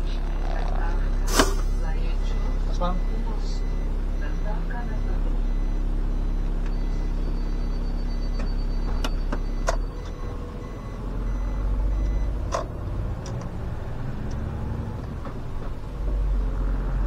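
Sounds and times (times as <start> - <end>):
bus diesel engine running: 0.0 - 17.0
electronic warning tone: 0.2 - 12.4.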